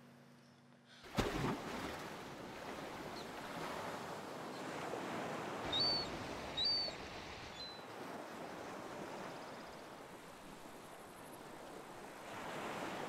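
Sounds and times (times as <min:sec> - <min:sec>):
ocean surf and wind: 0:01.7 - 0:13.0
seabird calls: 0:05.5 - 0:08.0.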